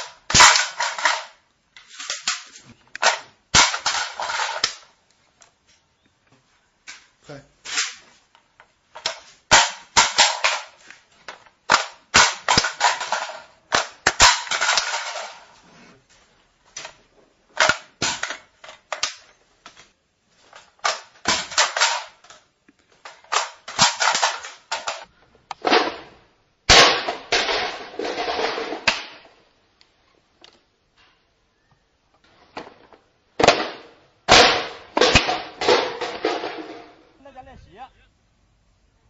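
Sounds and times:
rattling and rustling: 0:00.0 - 0:05.0, 0:06.9 - 0:26.2
rifle metal clicks and clatter: 0:00.0 - 0:05.5.

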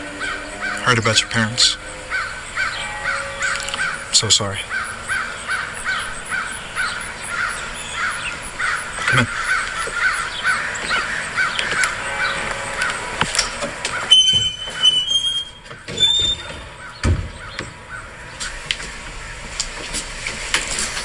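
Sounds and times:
metal garage door squealing: 0:00.0 - 0:06.4, 0:11.4 - 0:18.6
crows cawing: 0:00.0 - 0:14.9, 0:15.7 - 0:19.4
garage door landing thud: 0:15.7 - 0:17.8.

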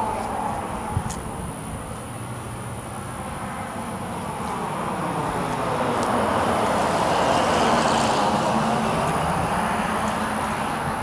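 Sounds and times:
vehicle driving past: 0:04.6 - 0:10.8.

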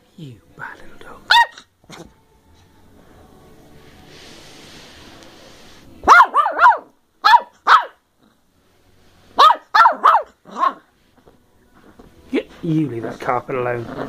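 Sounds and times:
puppy barking: 0:01.3 - 0:02.1, 0:06.0 - 0:08.0, 0:09.4 - 0:10.9.

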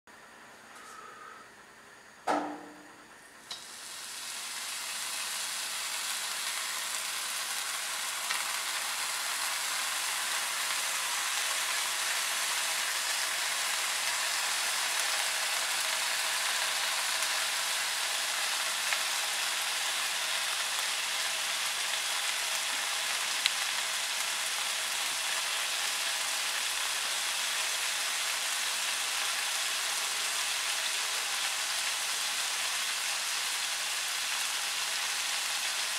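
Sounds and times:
bacon sizzling in a pan: 0:03.4 - 0:35.9.

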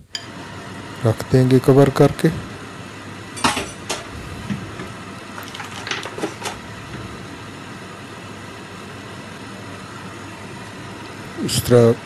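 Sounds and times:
steady background hiss: 0:00.0 - 0:12.0
plastic cling film crackling: 0:05.3 - 0:06.6.

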